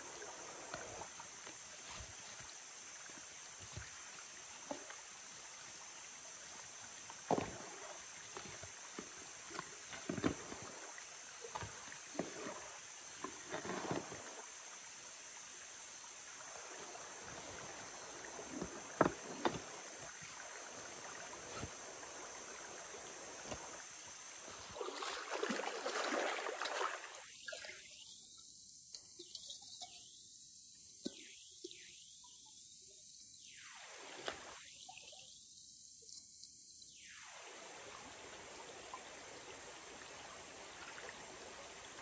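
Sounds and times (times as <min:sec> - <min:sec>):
stream rushing: 0:16.4 - 0:27.3.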